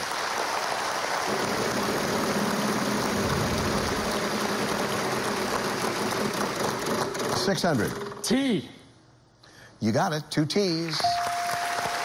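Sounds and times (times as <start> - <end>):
audience applause: 0.0 - 7.4, 10.8 - 12.0.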